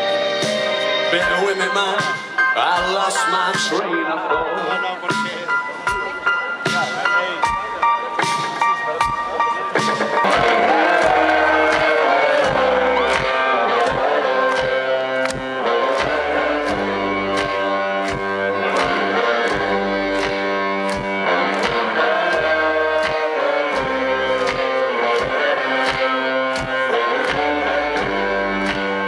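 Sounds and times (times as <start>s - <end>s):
steady drum beat: 5.1s - 29.0s
electric guitar riff sliding down: 10.2s - 29.0s.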